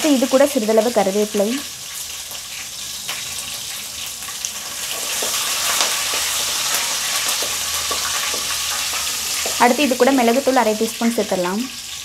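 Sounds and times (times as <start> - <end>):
leaves sizzling in hot oil: 0.0 - 12.0.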